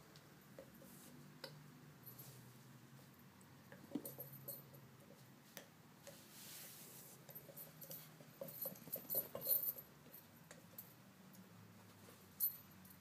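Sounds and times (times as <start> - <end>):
short rustle: 6.1 - 7.3.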